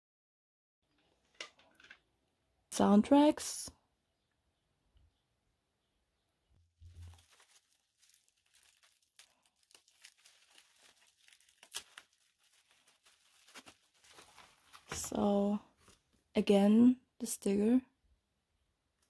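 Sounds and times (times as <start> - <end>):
plastic wrapping crinkling: 6.8 - 16.1.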